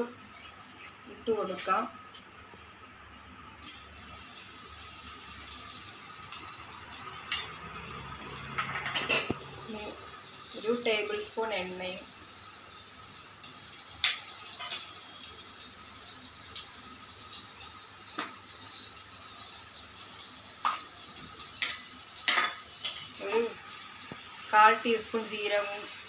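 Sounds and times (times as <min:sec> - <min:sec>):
butter sizzling in a pan: 0:03.6 - 0:26.0.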